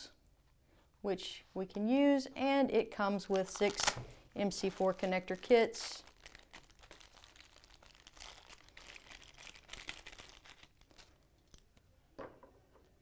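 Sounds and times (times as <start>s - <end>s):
plastic bag crinkling: 3.2s - 11.7s.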